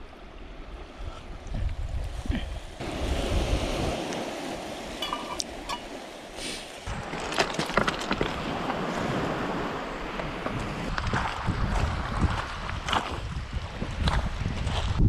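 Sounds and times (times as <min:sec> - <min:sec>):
wind buffeting microphone: 0:00.0 - 0:07.4, 0:08.1 - 0:15.0
waves on pebble shore: 0:02.1 - 0:14.1
metallic ring: 0:05.0 - 0:05.9.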